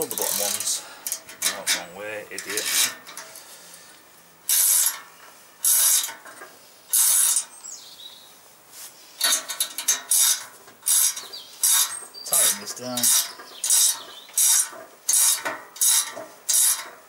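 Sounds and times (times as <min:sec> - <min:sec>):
ratchet spanner clicking: 0:00.0 - 0:01.6, 0:04.5 - 0:05.0, 0:05.6 - 0:06.2, 0:09.2 - 0:17.0.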